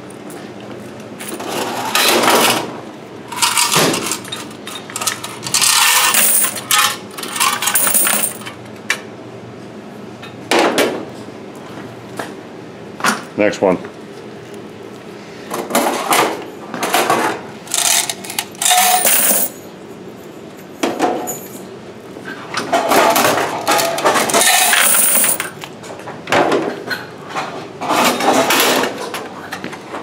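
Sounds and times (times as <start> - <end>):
coins pouring into plastic bucket: 5.4 - 8.4, 17.7 - 19.6, 24.3 - 25.5.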